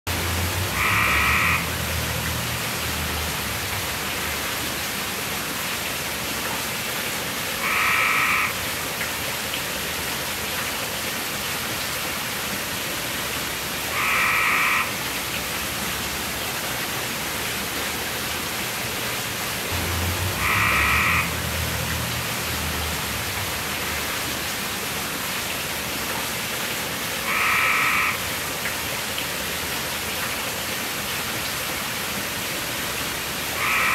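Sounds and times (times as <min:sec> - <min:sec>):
water pouring over waterfall: 0:00.1 - 0:33.9
frog croaking: 0:00.4 - 0:02.0, 0:07.6 - 0:08.6, 0:13.9 - 0:15.0, 0:19.7 - 0:23.6, 0:27.2 - 0:28.2, 0:33.6 - 0:33.9.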